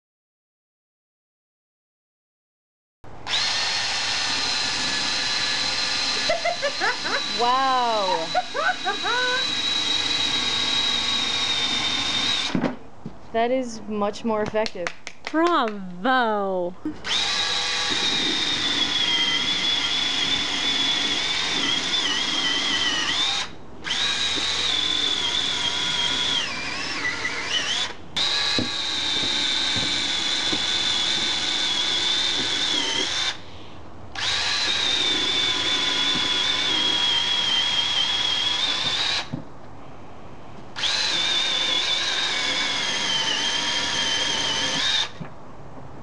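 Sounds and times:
chainsaw motor whining: 3.3 - 12.6, 16.9 - 33.4, 34.1 - 39.4, 40.8 - 45.2.

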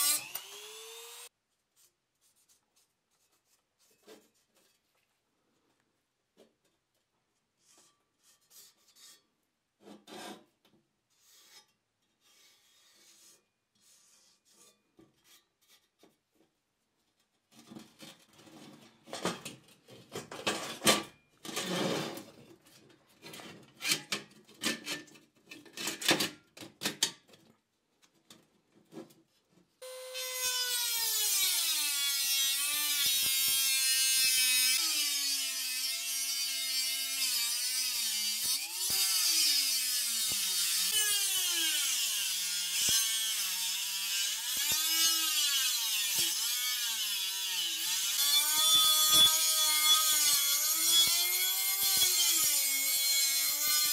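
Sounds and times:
rotary tool cutting steel: 0.0 - 1.3, 29.8 - 53.9.

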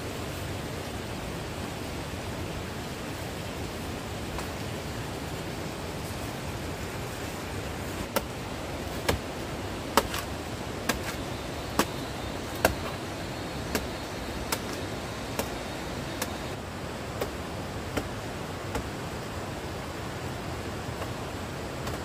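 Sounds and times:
rushing background noise: 0.0 - 22.0
blade chopping plant: 8.0 - 16.6, 17.2 - 19.0.

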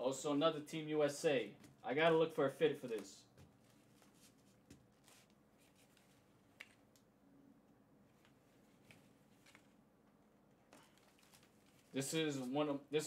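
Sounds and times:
fabric rustling and clicking: 8.1 - 9.8.

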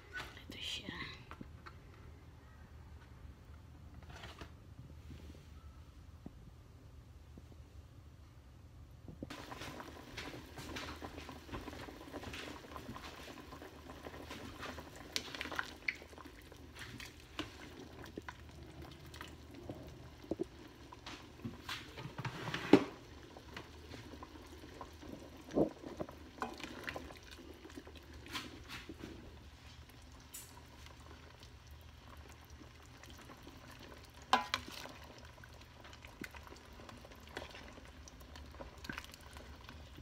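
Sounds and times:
soup bubbling in a pot: 9.3 - 40.0.

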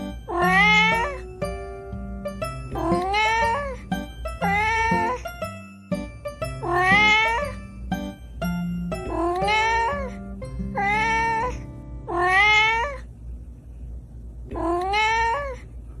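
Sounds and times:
light background music: 0.0 - 12.6
cat meowing: 0.3 - 1.2, 2.8 - 5.3, 6.6 - 7.6, 9.0 - 10.2, 10.8 - 13.1, 14.5 - 15.6.

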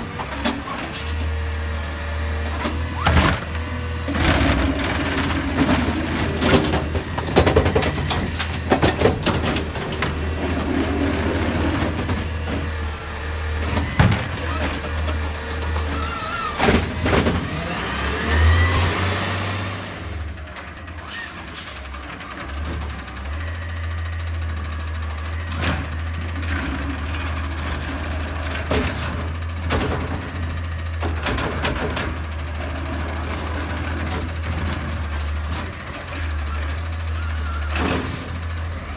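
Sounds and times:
clanks and knocks of cart dumping: 0.0 - 1.4, 2.4 - 21.7, 25.4 - 38.9
garbage truck engine running: 0.0 - 38.9
hydraulic whine: 10.5 - 20.4.

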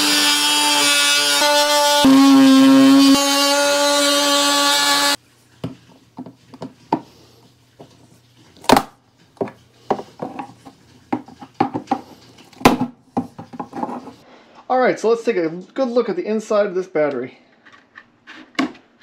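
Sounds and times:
oscillating multi-tool buzzing: 0.0 - 5.2.

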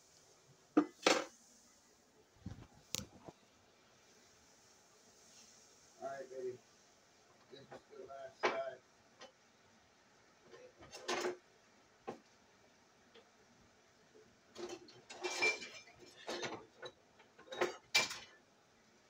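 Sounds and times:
dishes and pans clinking: 10.5 - 11.4, 14.6 - 18.4.

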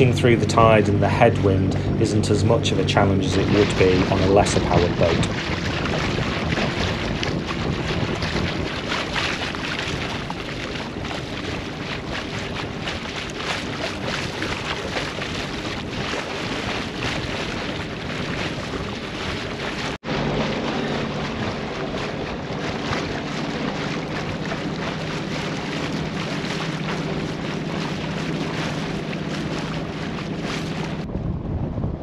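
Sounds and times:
boat engine droning: 0.0 - 32.0
wind buffeting microphone: 0.0 - 32.0.

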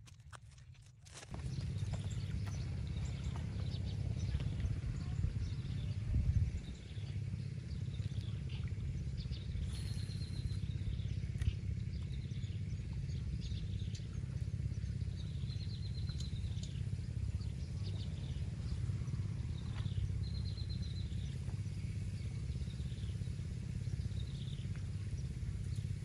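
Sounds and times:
steady low rumble: 0.0 - 26.0
small birds chirping: 1.1 - 26.0
short rapid bird trills: 9.2 - 11.2.

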